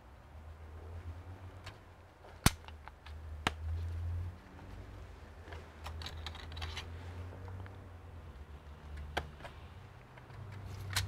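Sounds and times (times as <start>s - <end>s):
laptop parts clicking into place: 1.6s - 3.6s, 5.5s - 6.9s, 8.9s - 11.0s.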